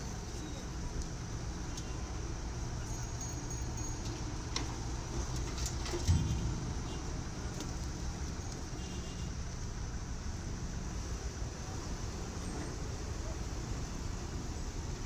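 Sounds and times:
debris thudding into truck bed: 5.9s - 8.4s
diesel engine running: 6.0s - 10.9s.

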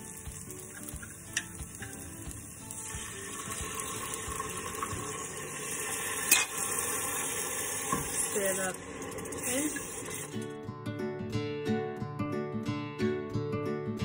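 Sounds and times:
liquid pouring into sizzling pot: 0.0s - 10.5s.

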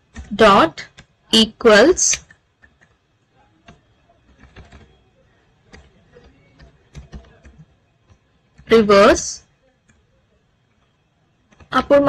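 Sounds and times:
faint keyboard keystrokes: 2.2s - 8.7s.

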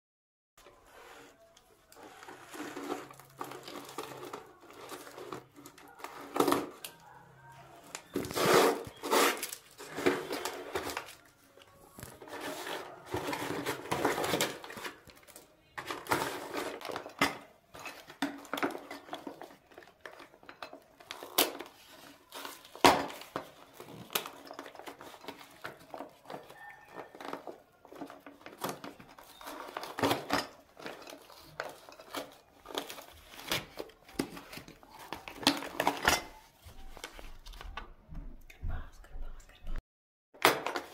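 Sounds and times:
cardboard and tape rustling: 0.6s - 38.0s
plastic wrapping crinkling: 1.9s - 37.8s
tape ripping: 8.0s - 11.2s.

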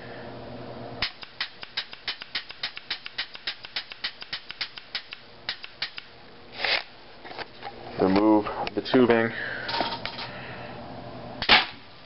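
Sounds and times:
paintball marker puffing clicks: 1.0s - 6.1s.

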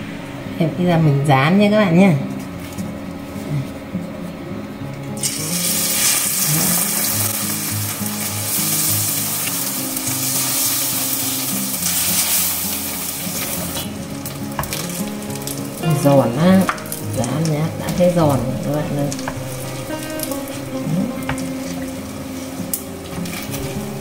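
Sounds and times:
food sizzling in hot oil: 5.2s - 24.0s.

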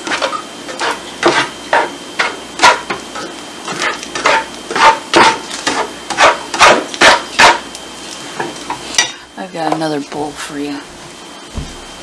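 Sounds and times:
spatula chopping in skillet: 0.0s - 7.8s.

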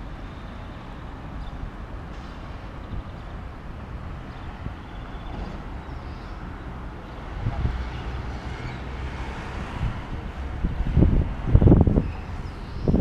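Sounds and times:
wind buffeting microphone: 6.9s - 13.0s.

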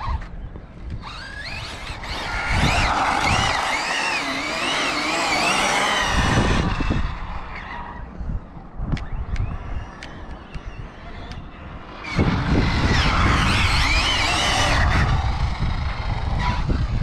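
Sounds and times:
electric motor whining: 0.9s - 7.3s, 9.9s - 17.0s.

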